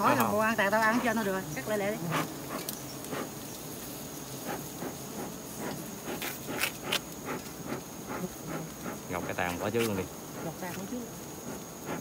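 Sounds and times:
knife cutting honeycomb: 4.5 - 12.0.

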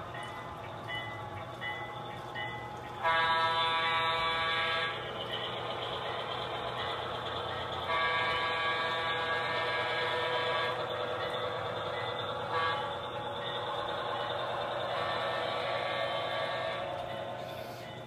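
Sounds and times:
model locomotive running: 0.0 - 18.0
model locomotive horn: 3.0 - 5.1, 7.8 - 11.0, 12.5 - 13.1, 14.8 - 17.9.

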